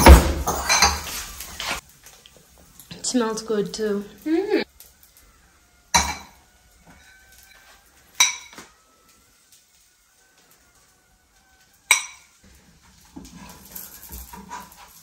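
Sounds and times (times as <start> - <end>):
metal spoon clinking on dishware: 0.5 - 1.1, 8.2 - 8.6, 11.9 - 12.3.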